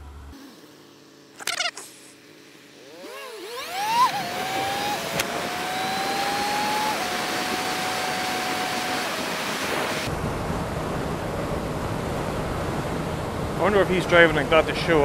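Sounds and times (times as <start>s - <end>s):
wind rush: 4.1s - 15.0s
low hum: 10.0s - 15.0s.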